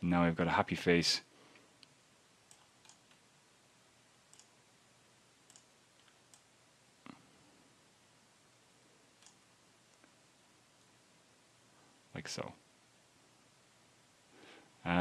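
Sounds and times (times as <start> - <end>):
computer mouse clicks: 2.5 - 3.2, 4.3 - 4.6, 5.4 - 7.2, 9.2 - 10.1.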